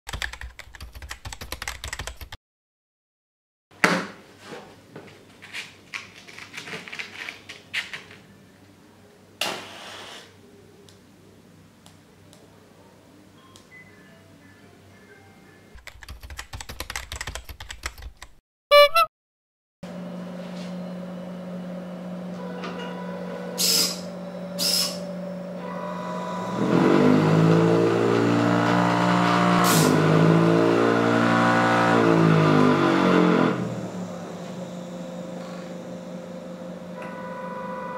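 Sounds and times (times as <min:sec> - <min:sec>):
motor whine: 0:20.8 - 0:29.6, 0:31.2 - 0:37.9.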